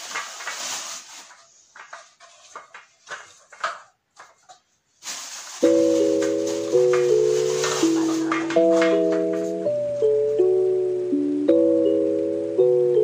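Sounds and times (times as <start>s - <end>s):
paper cups tapping on tray: 1.3s - 4.7s, 5.6s - 9.6s
marimba background music: 5.7s - 13.0s.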